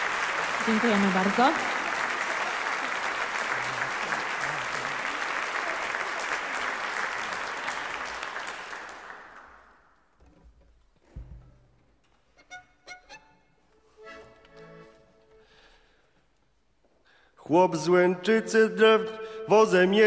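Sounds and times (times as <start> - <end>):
audience applause: 0.0 - 9.9.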